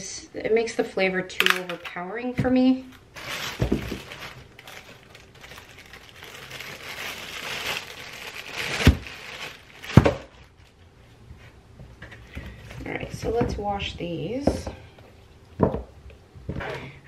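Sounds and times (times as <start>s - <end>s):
plastic bag crinkling: 2.9s - 10.9s.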